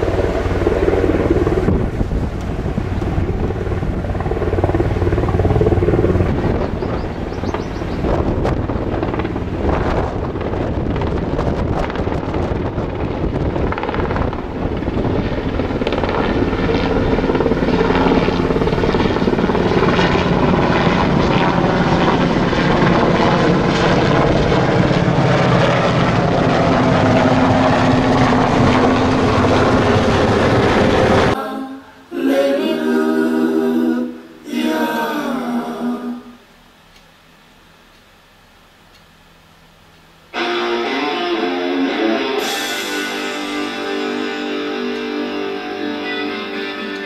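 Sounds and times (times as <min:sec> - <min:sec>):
helicopter flying overhead: 0:00.0 - 0:31.4
steady hum: 0:00.0 - 0:46.9.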